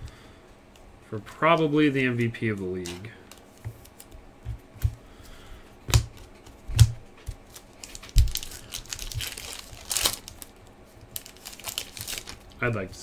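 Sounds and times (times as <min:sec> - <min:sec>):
card pack wrapper crinkling: 0:02.5 - 0:04.2, 0:05.9 - 0:12.8
trading cards knocking: 0:05.9 - 0:07.4.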